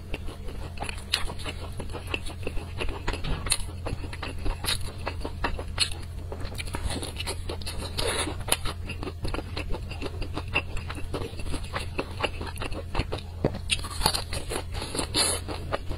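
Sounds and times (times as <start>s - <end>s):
chewing and crunching fried chicken: 0.0s - 15.9s
steady low hum: 0.0s - 15.9s.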